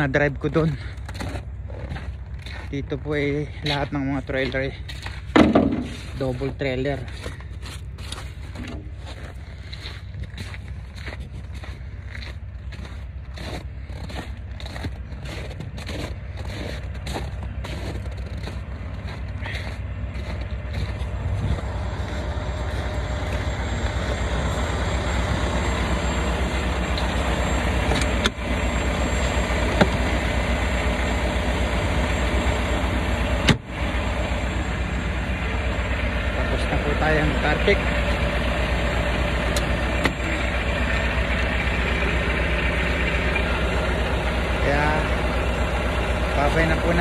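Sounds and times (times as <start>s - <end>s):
truck diesel engine idling: 0.0s - 47.0s
footsteps: 3.6s - 24.6s.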